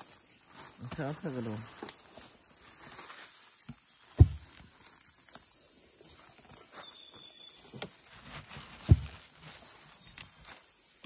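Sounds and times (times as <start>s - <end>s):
forest insects droning: 0.0s - 11.0s
deep dull thump: 4.2s - 4.6s, 8.8s - 9.2s.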